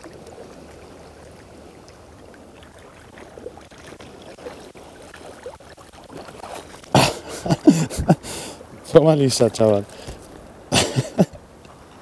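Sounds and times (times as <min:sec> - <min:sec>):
sea water sloshing: 0:00.0 - 0:12.0
small water splashes: 0:00.0 - 0:12.0.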